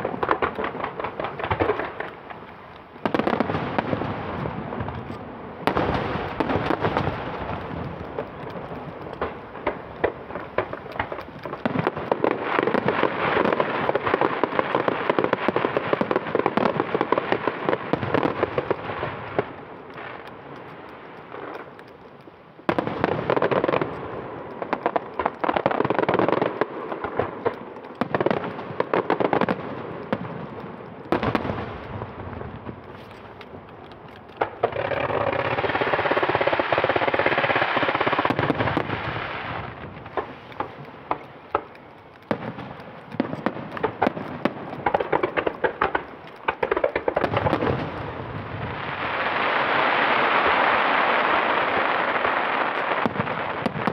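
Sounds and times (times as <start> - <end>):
firework crackling: 0.0 - 53.9
firework shells bursting: 0.0 - 53.9
single firework bangs: 3.0 - 20.2.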